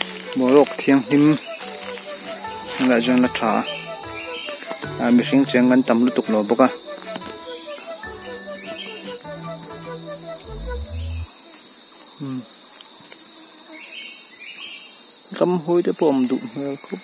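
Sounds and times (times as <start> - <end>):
insects droning: 0.0 - 17.0
short low repeated notes: 9.3 - 11.3.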